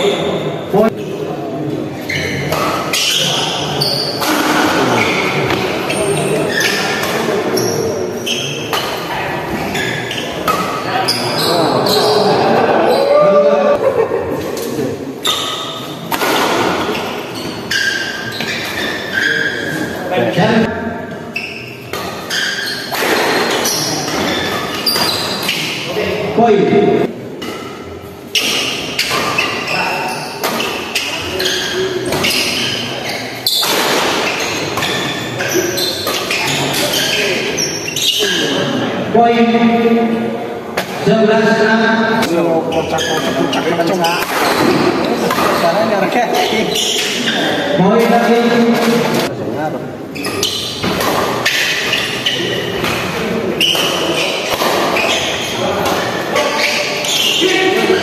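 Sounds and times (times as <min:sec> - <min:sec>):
chatter in a large hall: 0:00.0 - 0:58.0
murmur of spectators' voices: 0:00.0 - 0:58.0
rackets hitting shuttlecock: 0:44.1 - 0:45.7.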